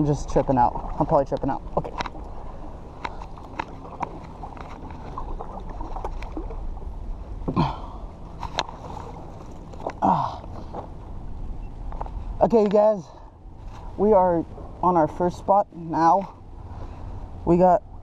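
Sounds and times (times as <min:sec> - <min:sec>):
paddle dipping and dripping: 0:00.0 - 0:15.1
steady low rumble: 0:00.0 - 0:18.0
person grunting: 0:07.5 - 0:08.0, 0:10.0 - 0:10.4.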